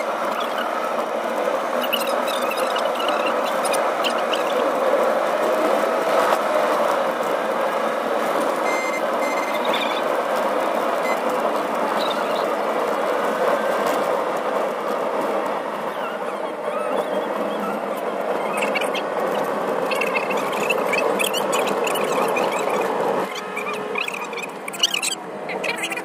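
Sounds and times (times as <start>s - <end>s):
car road and engine noise: 0.0s - 26.0s
short high beeps: 8.7s - 9.8s.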